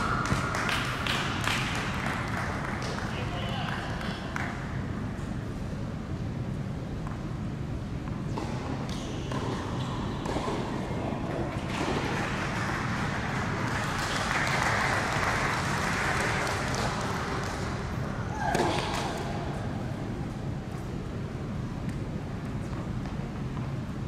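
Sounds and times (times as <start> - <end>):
tennis ball bouncing on court: 8.0 - 12.2, 18.4 - 19.5.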